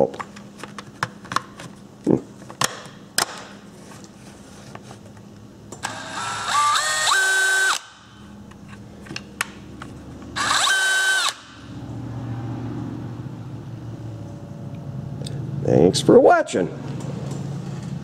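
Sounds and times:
cordless drill motor whine: 5.8s - 8.2s, 10.4s - 11.6s.

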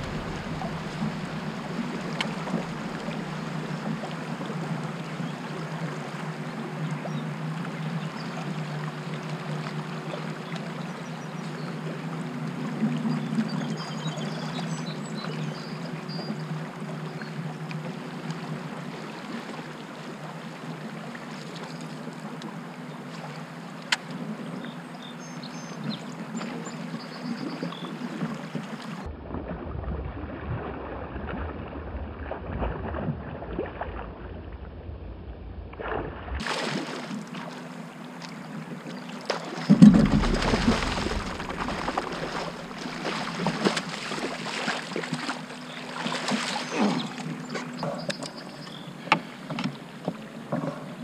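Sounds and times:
wind on microphone: 0.0s - 4.7s, 39.7s - 43.8s
low steady hum: 0.0s - 27.9s, 28.9s - 49.4s
water lapping against hull: 0.0s - 51.0s.

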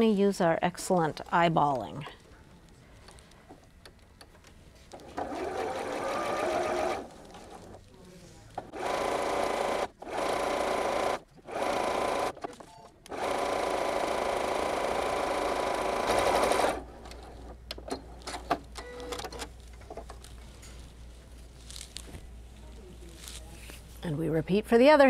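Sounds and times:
sewing machine stitching: 5.0s - 7.8s, 8.6s - 16.9s.

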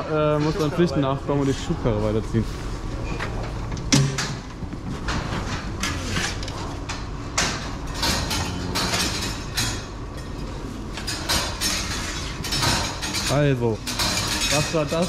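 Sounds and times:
low hum: 0.0s - 13.2s.

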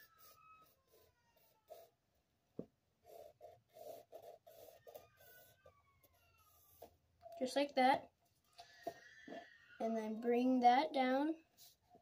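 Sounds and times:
pencil scratching on paper: 0.0s - 2.0s, 3.0s - 7.0s, 11.5s - 12.0s.

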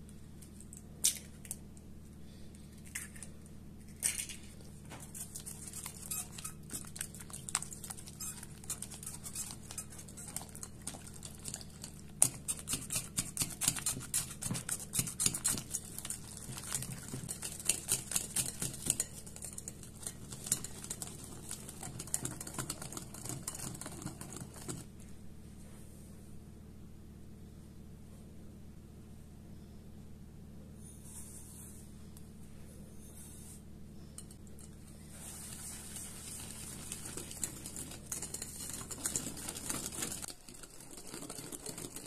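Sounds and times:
wet mixing: 4.6s - 25.0s, 34.2s - 42.0s.

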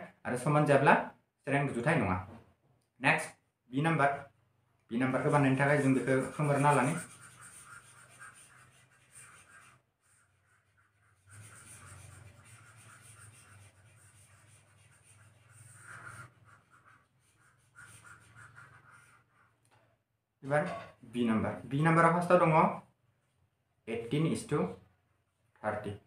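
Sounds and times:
eraser rubbing on paper: 5.0s - 19.6s.

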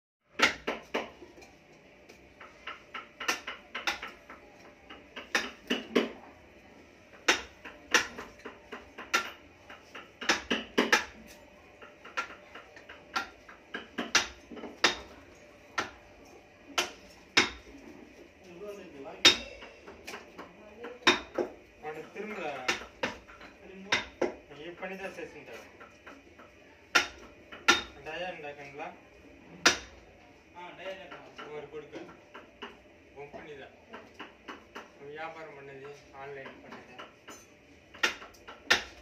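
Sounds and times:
hammer striking wood chisel: 0.4s - 1.2s, 2.4s - 6.2s, 7.2s - 11.2s, 11.8s - 15.2s, 16.8s - 17.6s, 19.2s - 21.6s, 26.0s - 28.0s, 29.6s - 29.9s, 36.4s - 39.0s.

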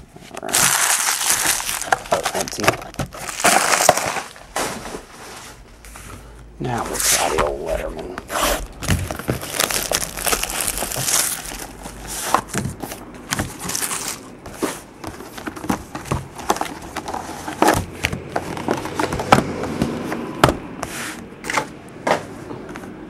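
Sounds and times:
plastic shrink wrap crinkling: 0.4s - 5.2s, 8.6s - 14.4s
boxes knocking on tabletop: 15.0s - 20.6s.

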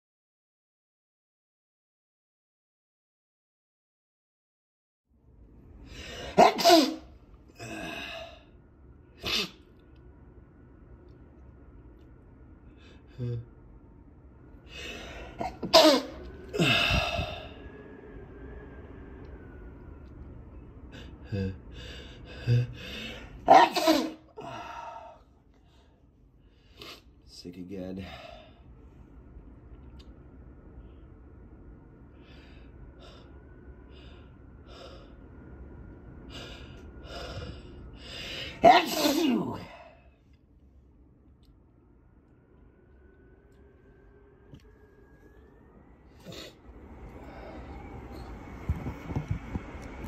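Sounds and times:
person sneezing into handkerchief: 6.4s - 7.1s, 9.2s - 9.6s, 23.5s - 24.2s, 38.6s - 39.5s
person gasping breaths: 7.6s - 8.6s, 16.5s - 17.7s, 20.9s - 23.4s, 24.4s - 27.1s, 36.3s - 38.6s.

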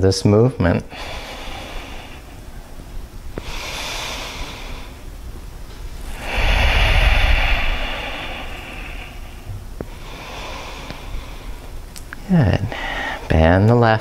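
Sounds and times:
long exhale buffeting microphone: 0.9s - 5.0s, 6.0s - 11.8s, 12.7s - 13.3s.

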